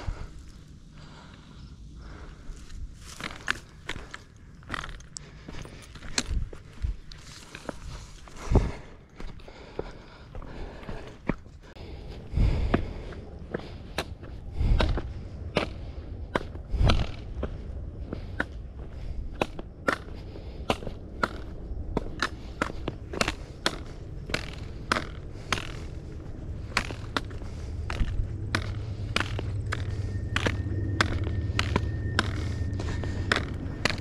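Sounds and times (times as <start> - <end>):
heavy thuds: 20.7 - 34.0
trekking poles clicking on rock: 22.1 - 31.8.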